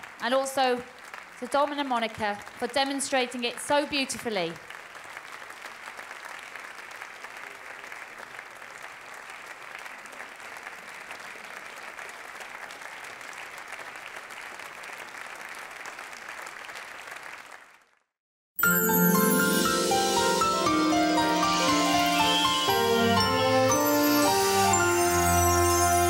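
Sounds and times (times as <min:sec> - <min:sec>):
audience applauding: 0:00.0 - 0:03.0, 0:04.5 - 0:18.0, 0:18.6 - 0:26.0.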